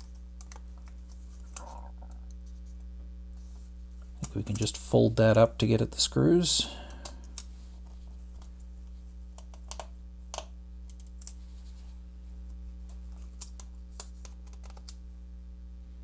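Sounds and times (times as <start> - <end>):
low electrical hum: 0.0 - 16.0
fingers tapping plastic laptop parts: 9.4 - 11.4, 13.2 - 15.0.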